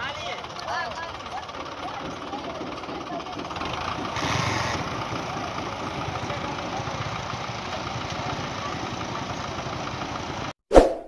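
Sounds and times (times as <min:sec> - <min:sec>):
tractor diesel engine idling: 0:00.0 - 0:10.5
brief rush of noise: 0:10.7 - 0:11.0.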